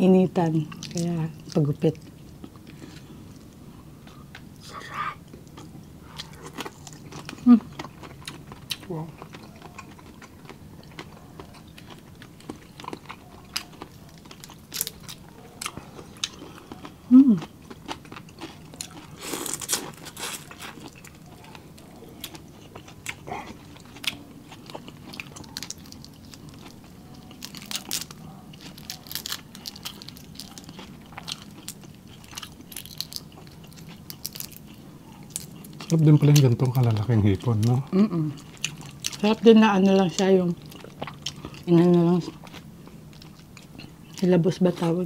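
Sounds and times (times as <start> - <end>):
crunching and chewing prawn shells: 0.4 - 45.0
person humming: 17.1 - 17.4.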